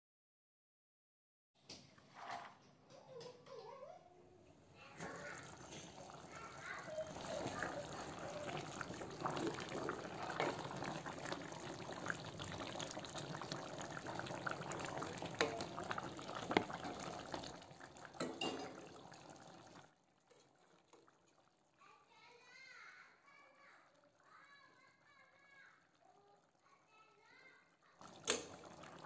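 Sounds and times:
liquid sloshing and bubbling: 4.9 - 21.8, 28.0 - 29.0.

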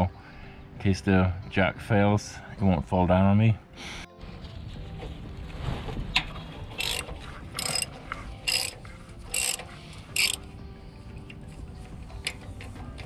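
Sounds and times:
ratchet wrench clicking: 6.8 - 10.4.

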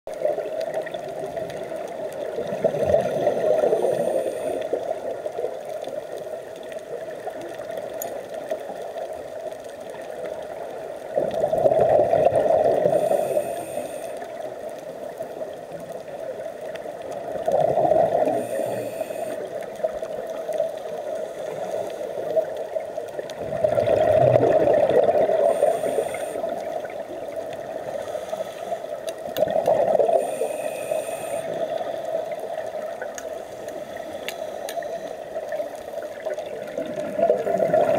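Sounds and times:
bubbling exhaled air underwater: 0.1 - 5.2, 11.1 - 13.9, 17.2 - 19.5, 23.2 - 28.0, 29.1 - 33.2, 35.4 - 37.9
regulator thin hiss: 13.0 - 14.2, 25.5 - 26.5, 30.2 - 31.6.

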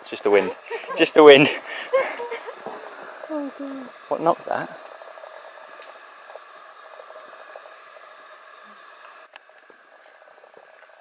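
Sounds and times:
continuous hiss: 0.0 - 11.0
insects buzzing: 0.0 - 11.0
faint ticks: 5.7 - 7.7, 8.6 - 11.0.

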